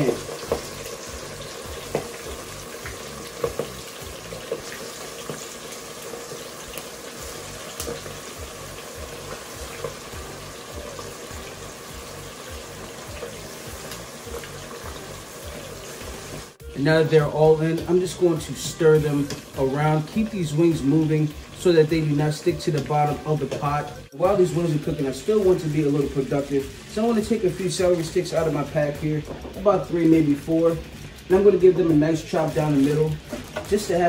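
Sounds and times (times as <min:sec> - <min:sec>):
sharp popping of frying oil: 0:00.0 - 0:16.6
oil sizzling: 0:00.0 - 0:34.0.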